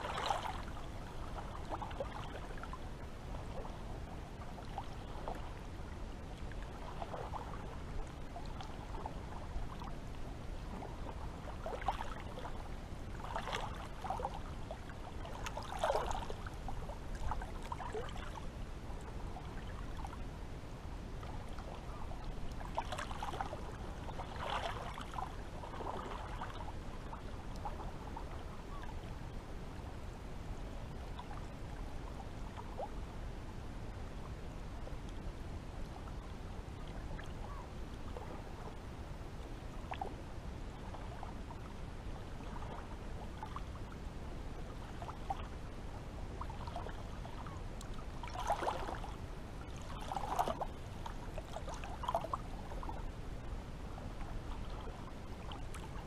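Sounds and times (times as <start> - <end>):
small water splashes: 0.0 - 3.8, 6.4 - 18.5, 21.2 - 28.9, 46.4 - 53.1
low water rush: 0.0 - 56.0
water lapping and gurgling: 0.0 - 56.0.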